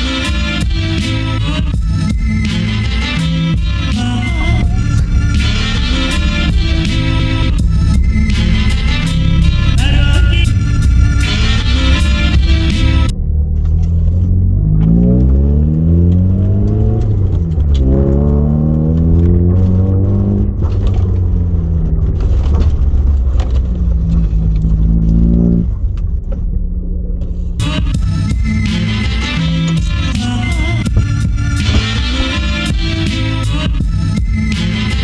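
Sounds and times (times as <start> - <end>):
music: 0.0 - 13.2, 27.3 - 35.0
car engine accelerating: 0.0 - 35.0.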